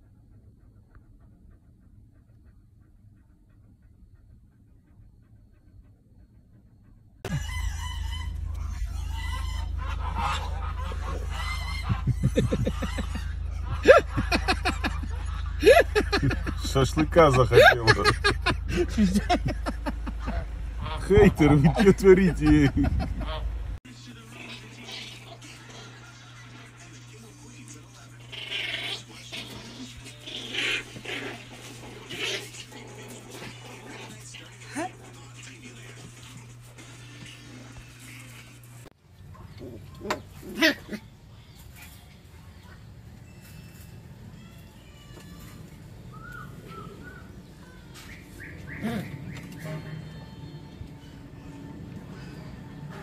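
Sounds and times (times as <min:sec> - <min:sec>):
farmyard animal cries: 0:00.0 - 0:18.0, 0:20.1 - 0:22.6, 0:23.2 - 0:41.6, 0:42.8 - 0:53.0
steady low hum: 0:00.0 - 0:41.4
puppies squeaky cries: 0:07.2 - 0:18.4, 0:28.0 - 0:34.9.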